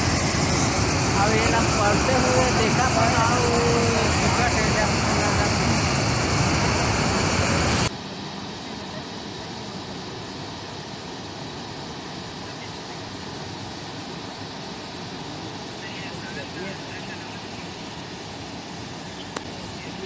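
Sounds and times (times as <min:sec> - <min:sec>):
floodwater rushing: 0:00.0 - 0:07.9.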